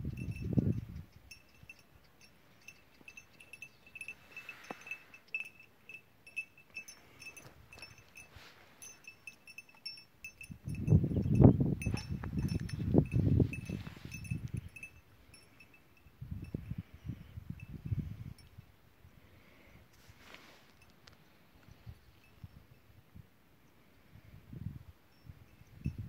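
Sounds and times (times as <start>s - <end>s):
small metal bells tinkling: 0.0s - 18.8s, 21.9s - 22.9s, 25.1s - 26.0s.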